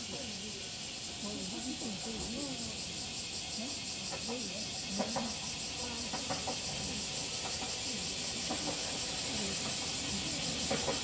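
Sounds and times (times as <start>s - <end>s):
cicadas shrilling: 0.0s - 11.0s
faint diesel railcar engine: 0.0s - 11.0s.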